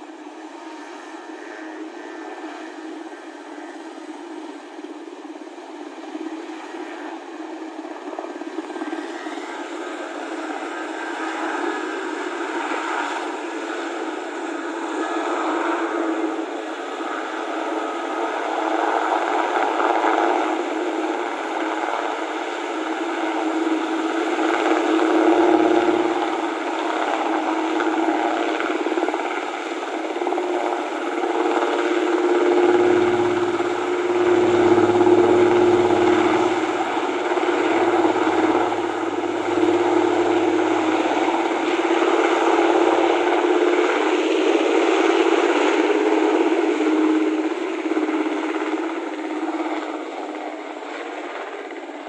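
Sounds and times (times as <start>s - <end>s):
helicopter rotor and engine: 0.0s - 52.0s.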